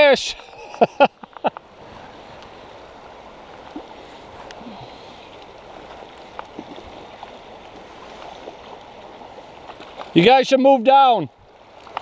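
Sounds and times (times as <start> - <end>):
river rushing over stones: 0.0 - 12.0
faint ticks: 0.3 - 1.7, 2.3 - 2.6, 3.7 - 4.6, 11.8 - 12.0.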